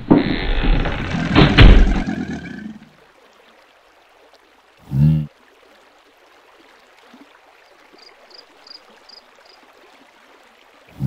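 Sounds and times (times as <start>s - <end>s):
faint flowing stream: 0.0s - 11.0s.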